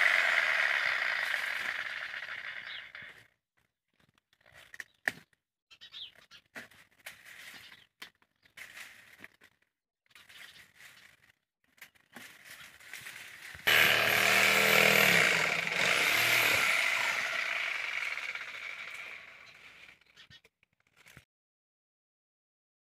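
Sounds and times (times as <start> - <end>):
engine-driven cutting machine: 0.0 - 3.2, 13.7 - 20.0
dry palm fronds rustling: 12.1 - 13.6.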